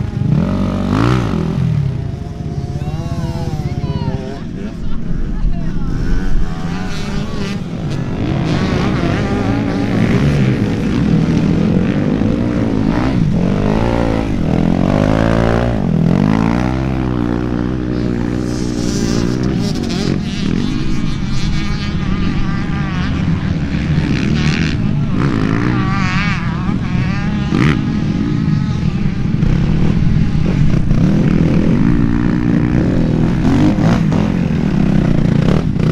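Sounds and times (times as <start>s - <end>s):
motocross bike engines revving: 0.0s - 35.9s.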